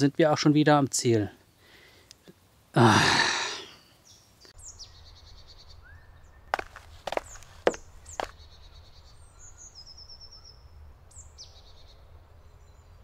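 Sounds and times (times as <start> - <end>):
songbirds calling: 3.6 - 13.0.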